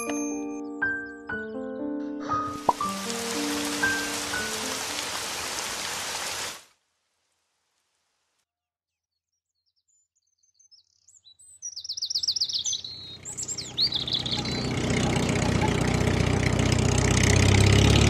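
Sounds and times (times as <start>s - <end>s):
birds chirping and trilling: 9.4s - 16.4s
tractor engine running: 13.2s - 18.0s.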